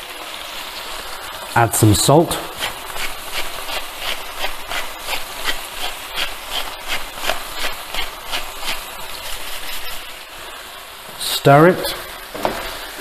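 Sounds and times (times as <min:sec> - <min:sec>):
salt grinder grinding: 0:02.5 - 0:10.1.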